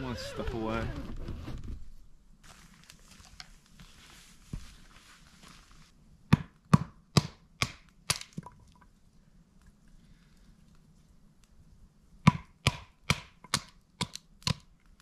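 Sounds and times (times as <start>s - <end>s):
faint rustling: 0.0s - 6.0s
baton knocking on log: 12.3s - 13.7s.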